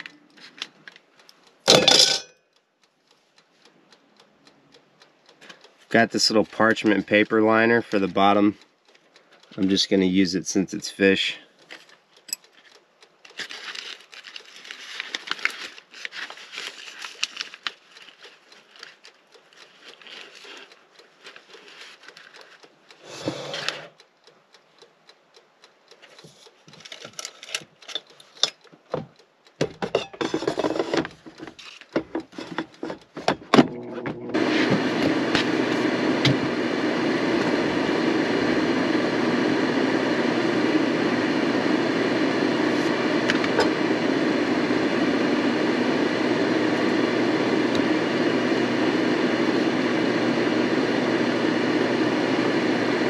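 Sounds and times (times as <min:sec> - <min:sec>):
air fryer fan running: 0:01.7 - 0:02.3, 0:23.0 - 0:23.9, 0:32.4 - 0:53.0
parchment paper rustling: 0:13.3 - 0:22.6.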